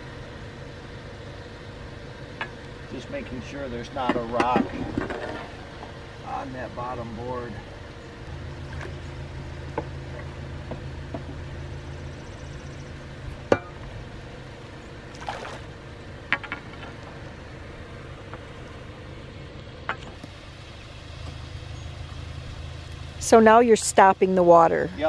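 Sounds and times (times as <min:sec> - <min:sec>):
flood water rushing: 0:15.1 - 0:15.7.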